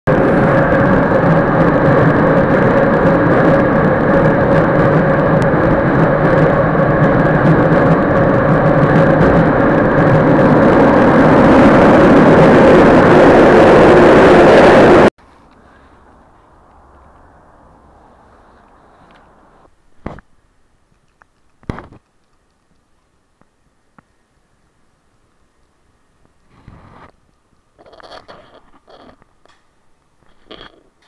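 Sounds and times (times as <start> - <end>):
train running inside carriage: 0.1 - 15.1.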